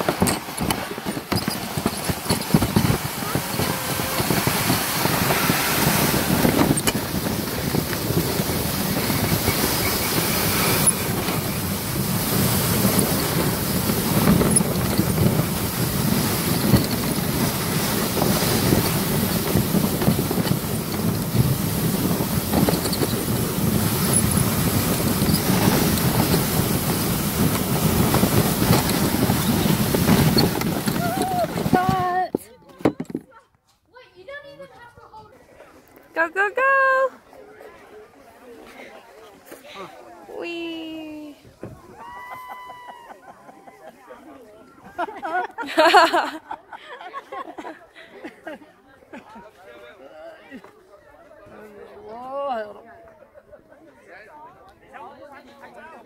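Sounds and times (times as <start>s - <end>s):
wind on microphone: 0.0s - 32.3s
sled scraping over snow: 0.0s - 33.1s.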